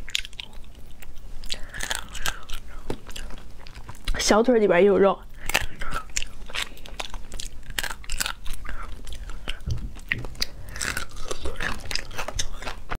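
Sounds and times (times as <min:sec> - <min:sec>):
wet mouth clicks: 0:00.0 - 0:03.3
biting and chewing crayfish: 0:00.0 - 0:04.6, 0:05.3 - 0:13.0
shell crackling: 0:01.6 - 0:04.2, 0:05.4 - 0:13.0.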